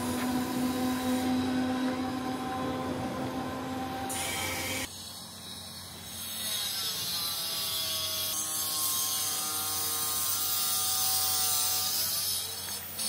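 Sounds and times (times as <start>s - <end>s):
passing train: 0.0s - 4.9s
faint wavering whine: 0.0s - 6.0s.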